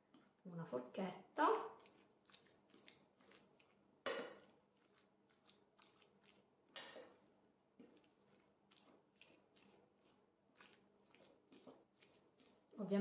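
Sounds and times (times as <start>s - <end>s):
fork clinking on ceramic plate: 4.1s - 4.5s.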